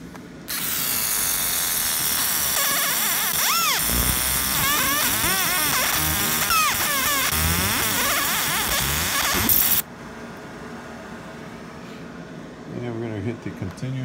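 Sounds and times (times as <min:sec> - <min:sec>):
laser scanner buzzing and chirping: 0:00.5 - 0:09.8.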